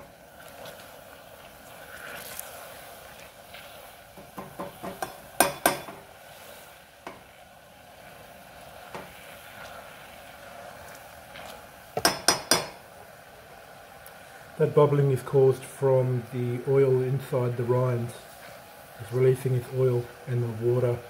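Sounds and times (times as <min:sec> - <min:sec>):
glaze bubbling and sizzling: 0:00.0 - 0:21.0
spatula knocking against pan: 0:04.2 - 0:06.0, 0:12.0 - 0:12.8.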